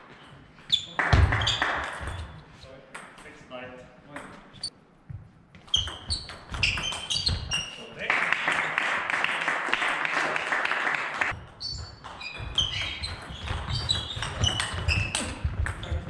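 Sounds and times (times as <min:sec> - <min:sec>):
shoes squeaking on floor: 0:00.0 - 0:02.7, 0:04.3 - 0:08.0, 0:11.3 - 0:16.0.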